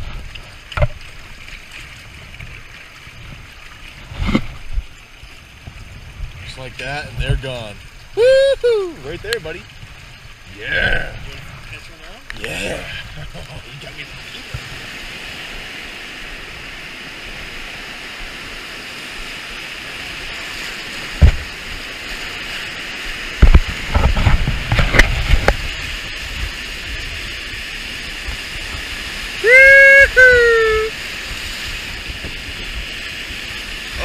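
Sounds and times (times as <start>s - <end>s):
water thumping against raft: 0.0s - 5.0s, 21.0s - 21.8s, 23.3s - 26.6s
whitewater rapids rushing: 6.4s - 9.7s, 10.4s - 34.0s.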